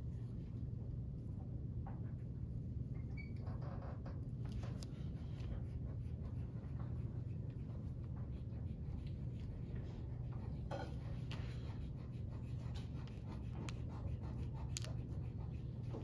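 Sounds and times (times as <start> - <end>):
steady low hum: 0.0 - 16.0
pencil scratching on paper: 4.6 - 16.0.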